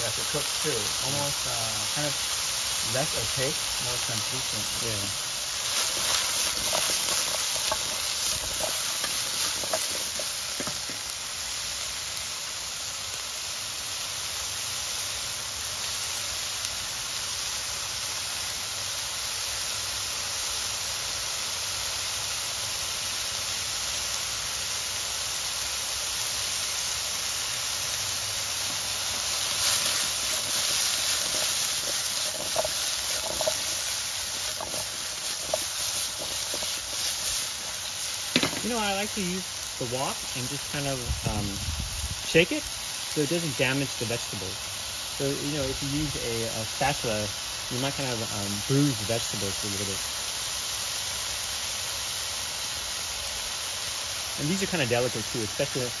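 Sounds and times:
squash sizzling in hot oil: 0:00.0 - 0:56.0
food clattering in a wok: 0:05.6 - 0:11.0, 0:29.6 - 0:38.6.

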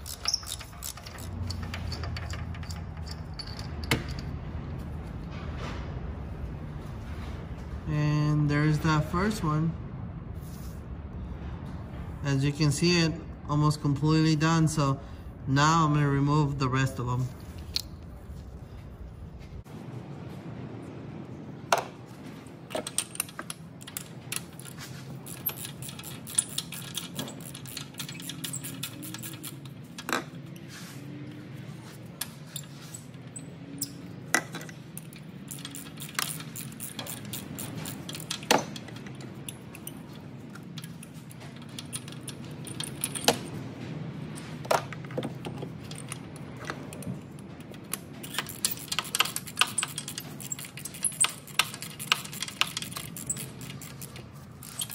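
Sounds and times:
socket wrench clicking: 0:00.0 - 0:04.3, 0:22.7 - 0:30.6, 0:33.8 - 0:43.5, 0:45.9 - 0:54.9.

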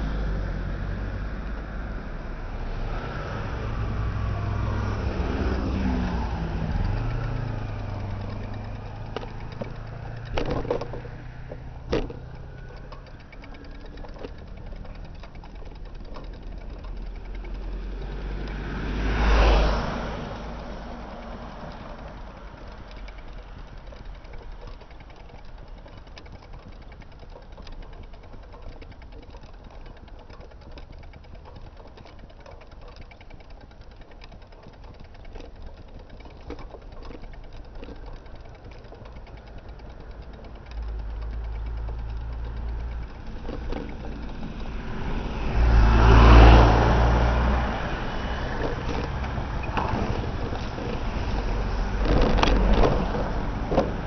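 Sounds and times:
bus engine: 0:00.0 - 0:54.0
light road noise: 0:00.0 - 0:54.0
truck passing by: 0:00.0 - 0:54.0.

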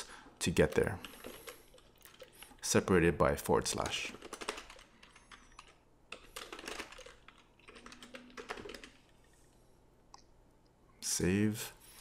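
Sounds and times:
faint computer keyboard typing: 0:00.5 - 0:02.7, 0:03.6 - 0:09.5.

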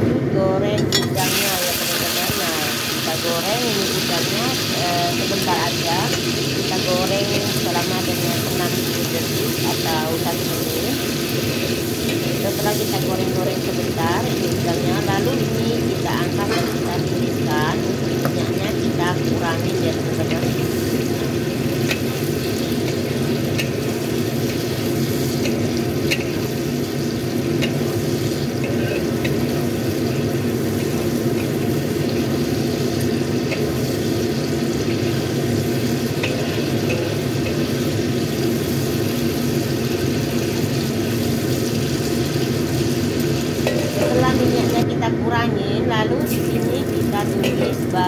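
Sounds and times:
shrimp sizzling in hot oil: 0:00.9 - 0:44.9, 0:46.2 - 0:48.0
metal utensils clicking on wok: 0:21.8 - 0:23.8, 0:25.4 - 0:26.5, 0:27.6 - 0:27.9, 0:28.6 - 0:29.6, 0:36.2 - 0:37.7, 0:43.6 - 0:44.8.

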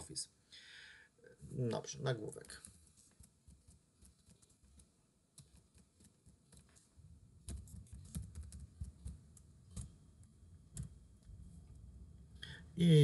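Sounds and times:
typing on computer keyboard: 0:07.5 - 0:09.9.

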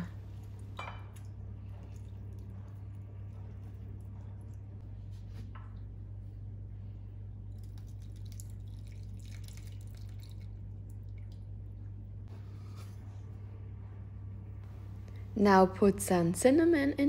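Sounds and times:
steady low hum: 0:00.0 - 0:17.0
juice dripping through a strainer: 0:07.4 - 0:12.0.

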